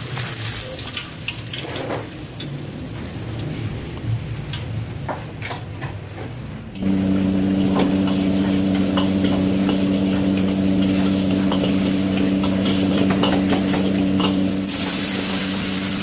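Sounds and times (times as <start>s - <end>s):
vegetables sizzling in wok: 0.0s - 4.0s, 6.8s - 16.0s
low hum: 6.8s - 14.7s
ladle scraping wok: 7.2s - 16.0s.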